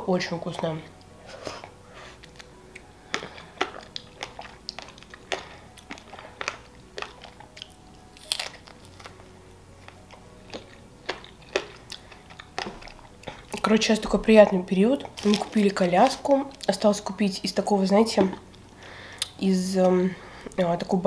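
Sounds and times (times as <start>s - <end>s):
close-miked chewing: 0.5s - 17.1s.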